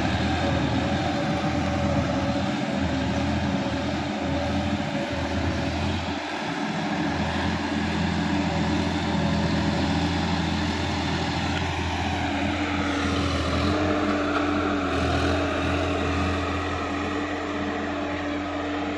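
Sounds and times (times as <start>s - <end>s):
tractor diesel engine running: 0.0s - 18.9s.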